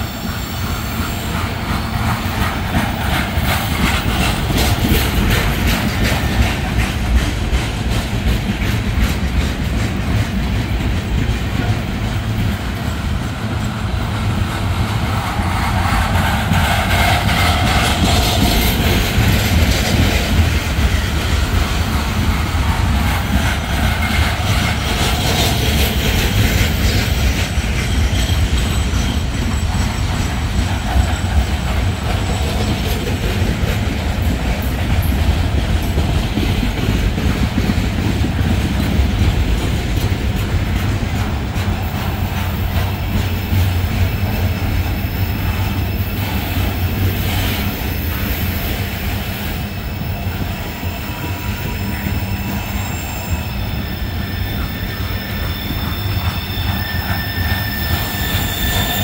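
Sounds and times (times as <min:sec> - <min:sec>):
freight cars rumbling on rails: 0:00.0 - 0:59.0
high wheel squealing: 0:49.4 - 0:59.0.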